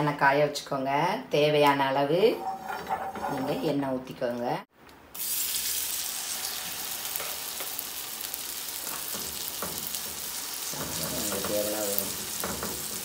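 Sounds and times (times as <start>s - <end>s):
steel spoon scraping and tapping: 2.4s - 3.7s
batter sizzling in hot oil: 5.1s - 13.0s.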